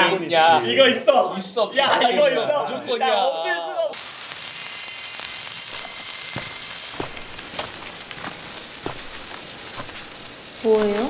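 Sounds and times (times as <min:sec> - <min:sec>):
sparkler crackles: 0:03.9 - 0:11.0
sparkler fizzing hiss: 0:03.9 - 0:11.0.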